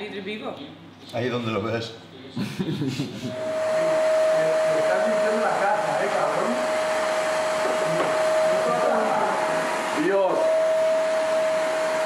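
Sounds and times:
rushing air: 3.3s - 12.0s
small appliance motor whining: 3.3s - 12.0s.

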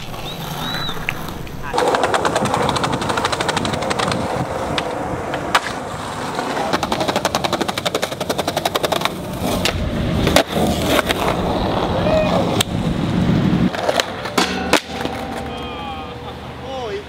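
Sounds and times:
skateboard clacking on curb: 0.0s - 16.4s
skateboard wheels rolling on concrete: 0.0s - 17.0s
fast run of clicks: 1.8s - 4.9s.

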